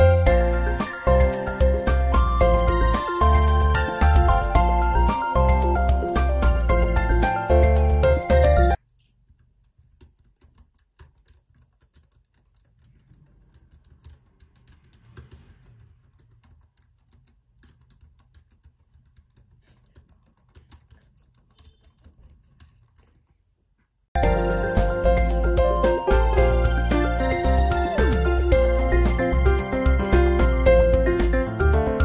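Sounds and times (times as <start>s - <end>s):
loud music: 0.0s - 8.8s, 24.2s - 32.0s
keyboard key clicks: 9.8s - 23.2s.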